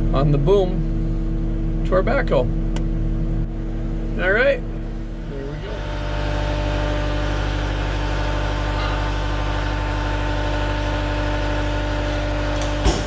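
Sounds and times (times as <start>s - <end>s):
diesel engine humming: 0.0s - 13.0s.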